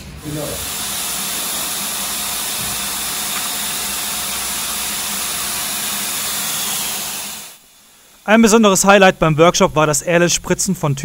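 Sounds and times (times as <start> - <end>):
spray gun hissing: 0.0 - 8.1.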